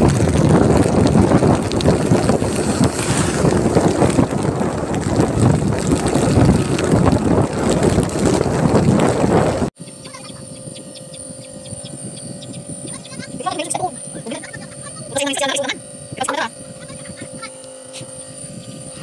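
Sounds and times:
scooter engine running: 0:00.0 - 0:19.0
wind rushing over microphone: 0:00.0 - 0:19.0
nebulizer compressor hum: 0:09.8 - 0:19.0.

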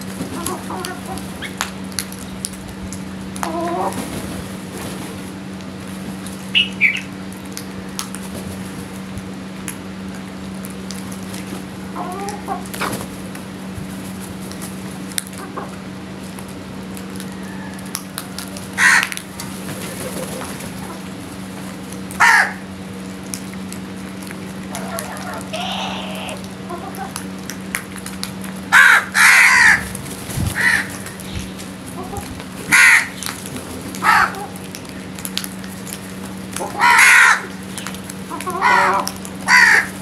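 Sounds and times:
steady low hum: 0:00.0 - 0:40.0
hens clucking: 0:00.2 - 0:01.6, 0:03.4 - 0:04.3, 0:11.9 - 0:13.1, 0:15.4 - 0:15.8, 0:17.1 - 0:21.2, 0:24.6 - 0:27.2, 0:31.8 - 0:32.7, 0:36.6 - 0:37.2, 0:38.3 - 0:40.0
crows cawing: 0:18.8 - 0:19.2, 0:22.2 - 0:22.6, 0:24.7 - 0:27.1, 0:28.7 - 0:29.9, 0:30.6 - 0:31.2, 0:32.7 - 0:33.3, 0:34.0 - 0:34.6, 0:36.6 - 0:37.6, 0:38.3 - 0:40.0.

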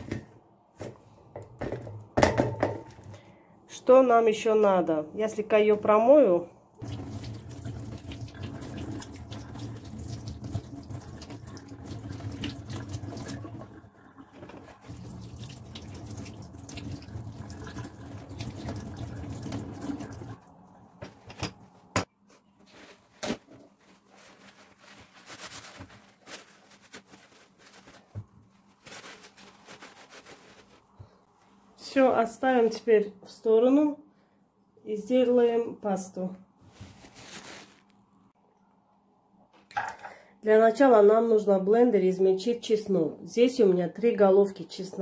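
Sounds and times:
tap water splashing into sink: 0:06.8 - 0:13.7, 0:14.3 - 0:20.4.

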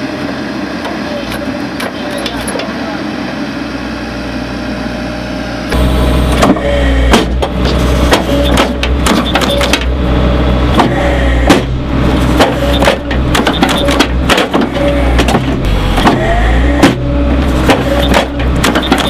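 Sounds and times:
excavator engine humming: 0:00.0 - 0:19.0
short squeals: 0:08.2 - 0:09.8, 0:12.4 - 0:15.2, 0:15.8 - 0:19.0.

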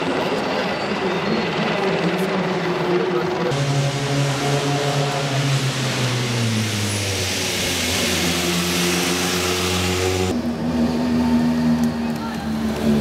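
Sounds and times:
rally car engine running: 0:00.0 - 0:13.0
another engine note: 0:03.5 - 0:11.9.

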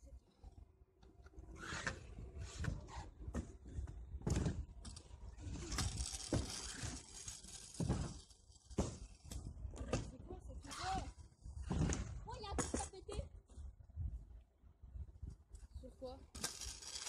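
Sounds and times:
scooter wheels rolling: 0:01.1 - 0:13.0, 0:16.3 - 0:17.0.

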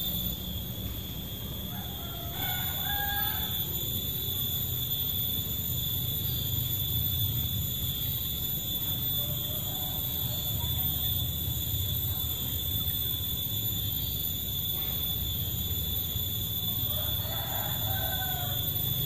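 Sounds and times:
rooster crowing: 0:01.6 - 0:04.5, 0:09.1 - 0:11.2, 0:16.2 - 0:19.0.

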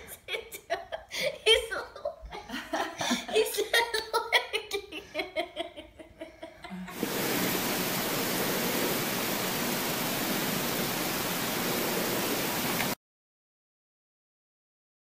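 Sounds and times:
person giggling: 0:00.0 - 0:07.0
steady hiss: 0:06.9 - 0:13.0.

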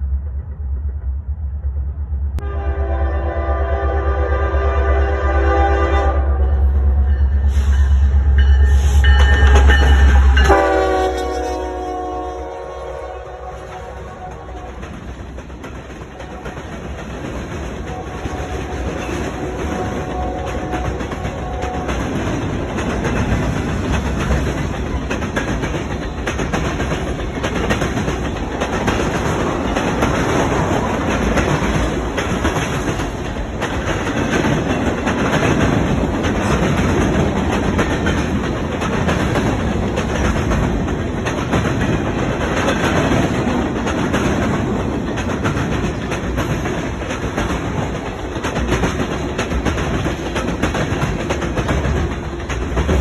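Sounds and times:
freight train rumbling past: 0:00.0 - 0:53.0
wheels clicking over rail joints: 0:13.6 - 0:53.0.

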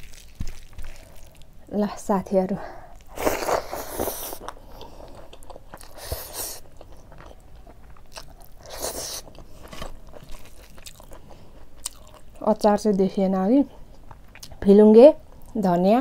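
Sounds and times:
crisp crunches: 0:00.0 - 0:01.6, 0:07.9 - 0:12.2
close chewing: 0:02.9 - 0:12.2.

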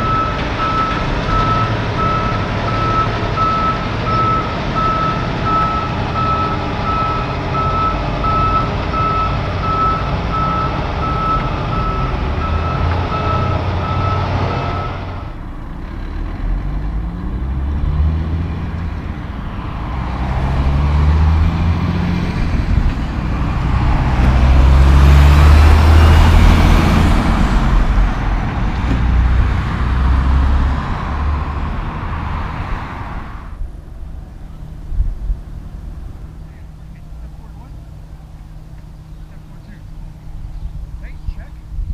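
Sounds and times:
backup alarm beeping: 0:00.0 - 0:15.1
diesel truck engine running: 0:00.0 - 0:41.9
diesel truck passing: 0:00.0 - 0:41.9.

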